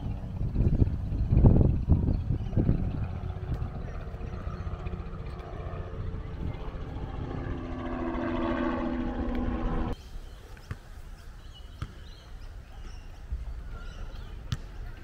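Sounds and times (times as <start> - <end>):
steady low rumble: 0.0 - 10.0
outdoor background: 0.0 - 15.0
passing vehicle engine: 4.4 - 10.0.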